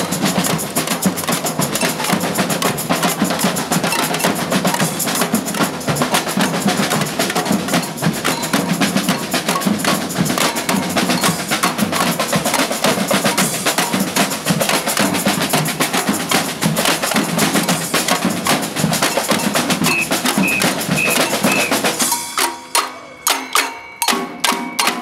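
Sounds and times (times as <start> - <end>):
percussion band drumming: 0.0 - 25.0
ringing drum strokes: 19.0 - 22.7.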